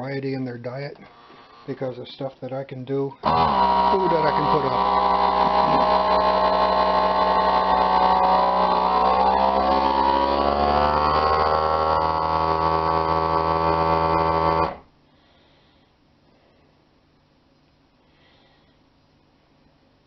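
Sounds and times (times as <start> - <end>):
vacuum sealer pump humming: 3.1 - 15.0.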